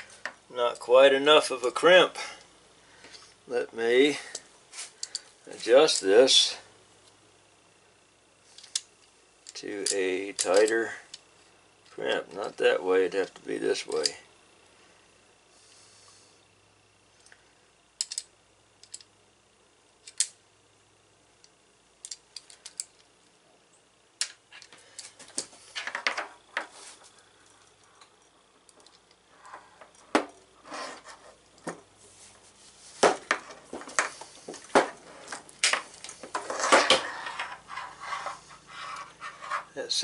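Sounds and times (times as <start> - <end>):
metal crimper clicking: 18.0 - 19.1
metal scraping: 30.6 - 31.4, 36.1 - 39.8.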